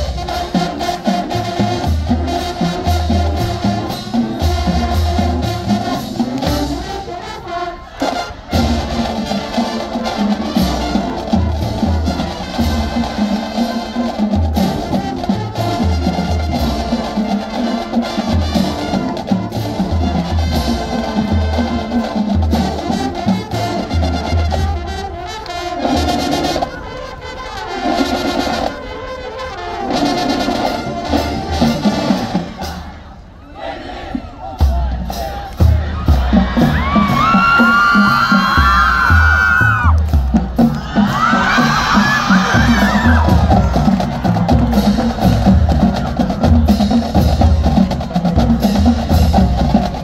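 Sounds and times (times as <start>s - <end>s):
marching drums beat: 0.0s - 7.1s, 8.0s - 26.6s, 30.0s - 32.9s, 34.5s - 50.0s
marching band brass: 0.0s - 50.0s.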